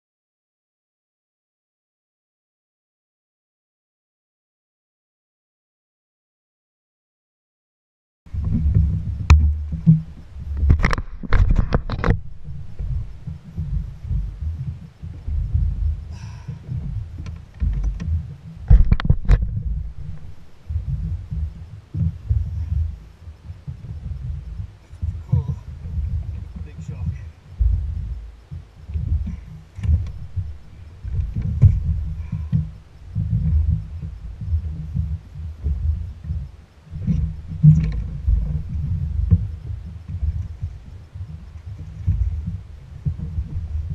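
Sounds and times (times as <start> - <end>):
wind buffeting microphone: 8.3 - 43.9
sharp knocks: 16.7 - 22.9.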